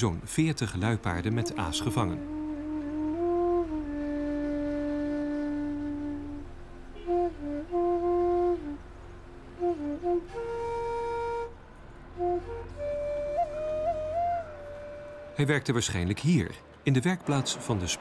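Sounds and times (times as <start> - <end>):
slow flute melody: 1.0 - 15.8.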